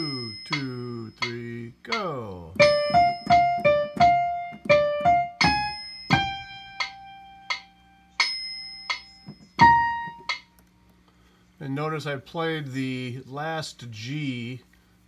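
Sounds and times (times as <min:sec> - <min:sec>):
piano single-note melody: 0:00.0 - 0:01.3, 0:02.6 - 0:10.5.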